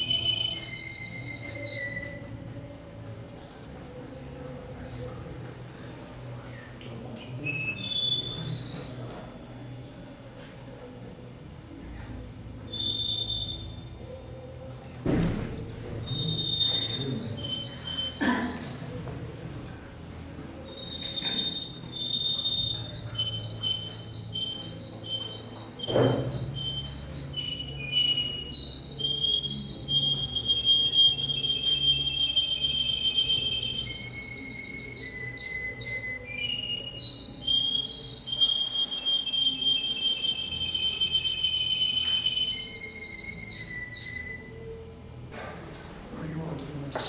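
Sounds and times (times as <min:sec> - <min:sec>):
canary singing with trills: 0:00.0 - 0:15.0, 0:15.6 - 0:18.9, 0:19.9 - 0:45.3
sharp knock: 0:15.0 - 0:15.6.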